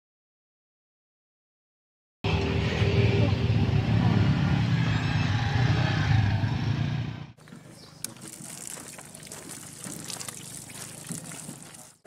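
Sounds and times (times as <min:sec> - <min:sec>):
traffic noise: 0:02.3 - 0:11.9.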